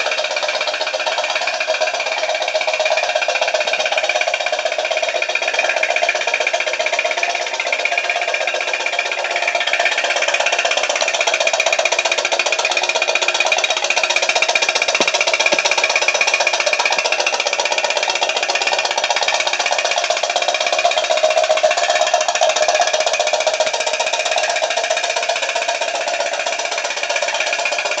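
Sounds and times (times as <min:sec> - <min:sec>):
steam boat engine rattling tick: 0:00.0 - 0:28.0.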